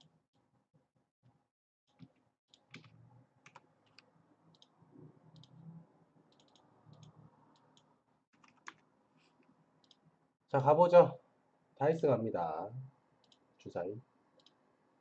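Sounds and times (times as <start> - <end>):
computer mouse clicks: 1.9 - 5.6, 6.3 - 8.8, 9.8 - 10.1, 13.2 - 13.5, 14.4 - 14.6.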